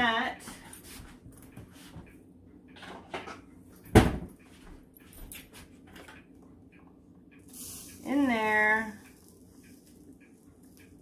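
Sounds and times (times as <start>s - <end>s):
cabinet door banging shut: 3.9s - 4.3s.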